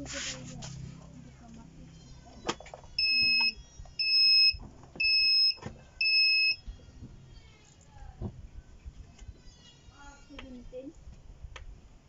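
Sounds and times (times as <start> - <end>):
printer buzzer beeping: 3.0 - 6.6.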